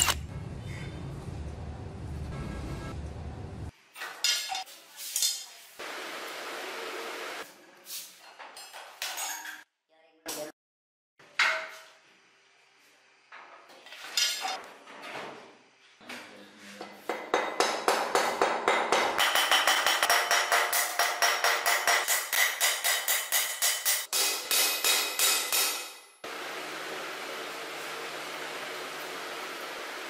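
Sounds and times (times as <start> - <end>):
hammer tapping steel on anvil: 17.0 - 26.1.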